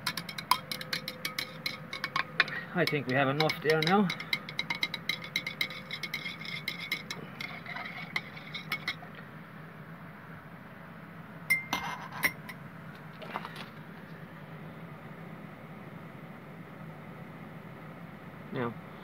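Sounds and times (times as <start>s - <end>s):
glass rod clinking in beaker: 11.5s - 12.5s.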